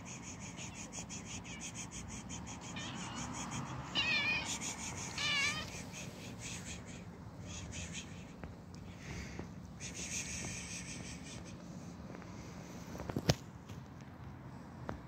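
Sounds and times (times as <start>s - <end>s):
cat meowing: 2.7s - 5.8s.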